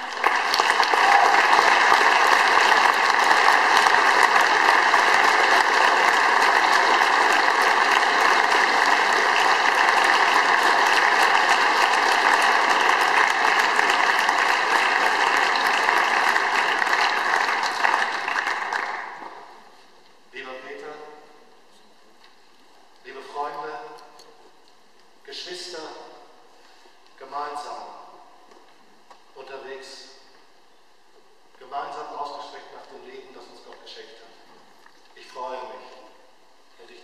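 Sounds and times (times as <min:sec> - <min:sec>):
audience applauding: 0:00.0 - 0:19.6.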